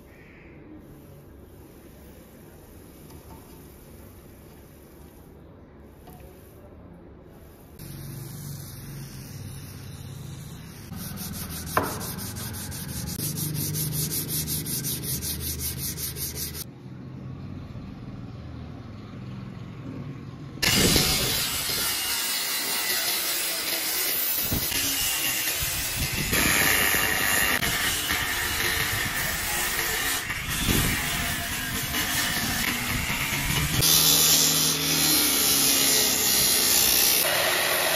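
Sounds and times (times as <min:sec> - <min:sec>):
sandpaper rubbing on wood: 0:07.4 - 0:16.7
steady rasping hiss: 0:07.4 - 0:16.7.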